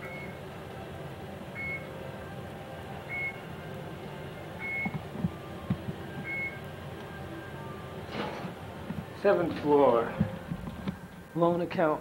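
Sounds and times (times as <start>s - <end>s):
elevator cab humming: 0.0s - 12.0s
short high elevator beeps: 1.6s - 1.9s, 3.1s - 3.4s, 4.6s - 4.9s, 6.2s - 6.6s.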